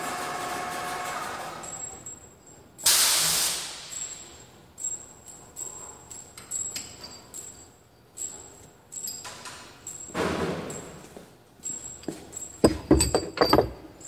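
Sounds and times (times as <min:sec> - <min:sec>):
compressed air hissing: 0:02.8 - 0:04.0
light metal clicks and knocks: 0:11.6 - 0:14.0.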